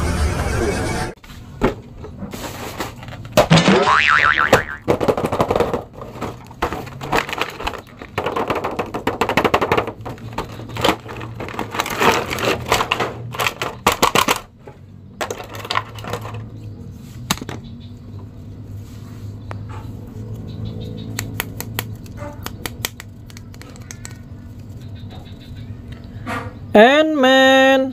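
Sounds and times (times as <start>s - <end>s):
plastic blister tray crackling: 4.8s - 14.5s.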